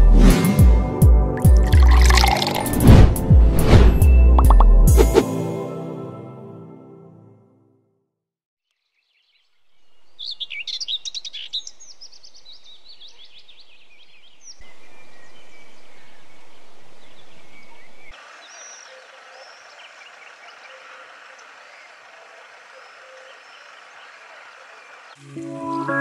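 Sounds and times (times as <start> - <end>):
outdoor background noise: 8.8 - 26.0
birds chirping and singing: 9.0 - 25.9.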